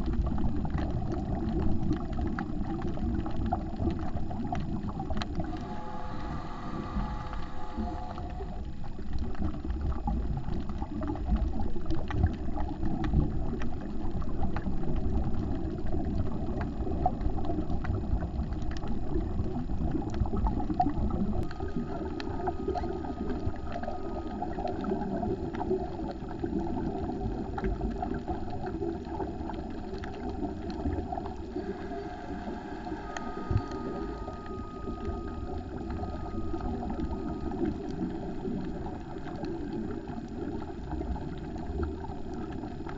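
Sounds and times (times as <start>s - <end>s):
faint underwater clicks and crackles: 0.0s - 42.9s
muffled underwater rumble: 0.0s - 42.9s
faint high whine: 4.7s - 9.4s, 20.2s - 26.0s, 30.4s - 40.8s.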